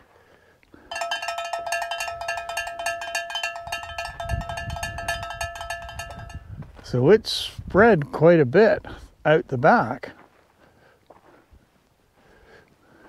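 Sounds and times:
jingling notification bell: 0:00.9 - 0:06.5.

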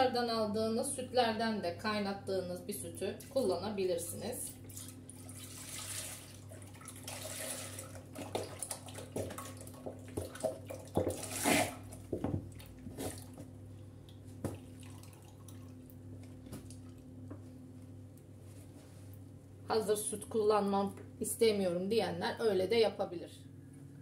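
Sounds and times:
milk pouring into metal pot: 0:04.7 - 0:11.7.

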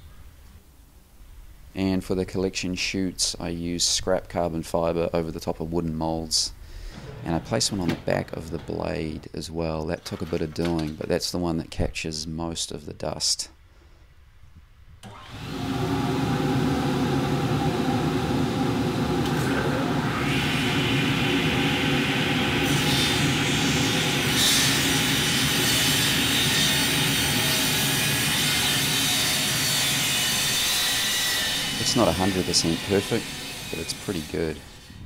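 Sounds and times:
vacuum units humming: 0:06.4 - 0:09.4, 0:15.0 - 0:34.8
saw whine: 0:15.1 - 0:35.0
saw blade cutting board: 0:20.2 - 0:35.0.

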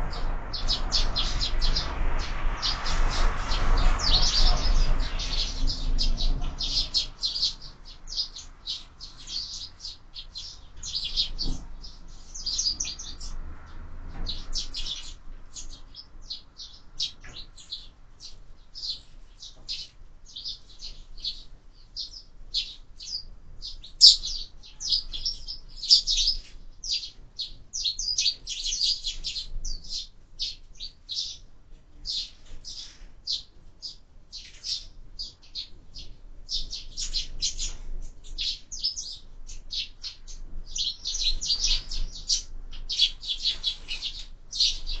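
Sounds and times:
sparrows chirping: 0:00.0 - 0:45.0.

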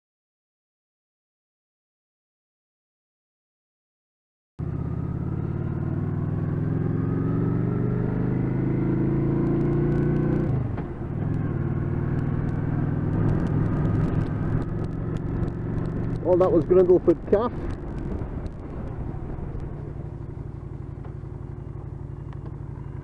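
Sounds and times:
motorcycle engine pulling: 0:09.6 - 0:23.0.

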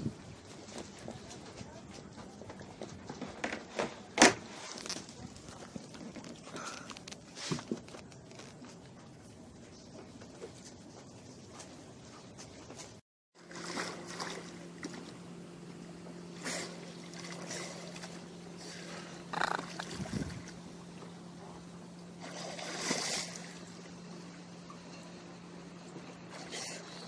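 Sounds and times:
steady low hum: 0:00.0 - 0:27.0
water splashing and sloshing: 0:10.1 - 0:27.0.

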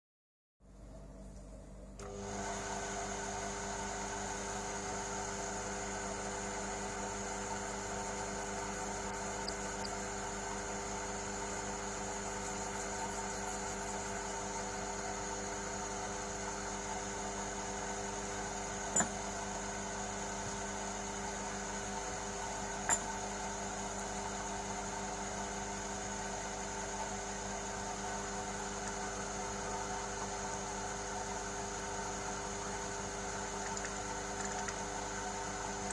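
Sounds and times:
lathe humming: 0:02.0 - 0:25.2.

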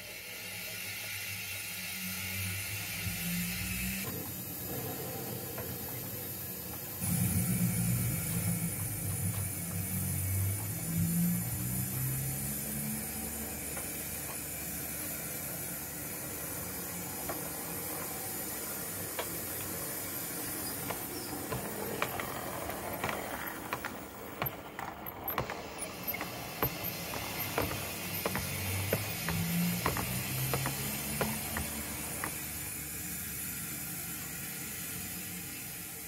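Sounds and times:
model train hiss: 0:00.0 - 0:36.0
wheels clicking over rail joints: 0:03.9 - 0:33.1.

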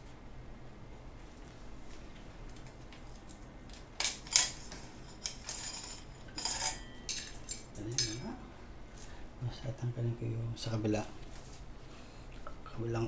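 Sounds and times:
bicycle chain clinking: 0:04.0 - 0:08.3.

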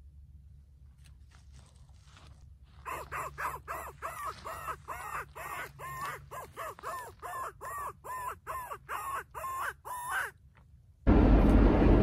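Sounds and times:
harsh crow-like caws: 0:02.8 - 0:10.4.

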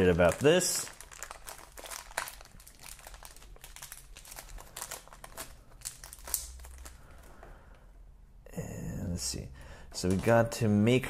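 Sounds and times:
plastic blister tray crackling: 0:00.0 - 0:07.0
plastic bag crinkling: 0:00.0 - 0:07.3.

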